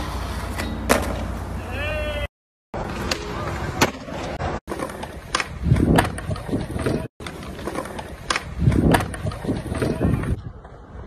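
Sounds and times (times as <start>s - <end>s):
skateboard wheels rolling on concrete: 0.0s - 11.0s
skateboard clacks: 2.9s - 10.9s.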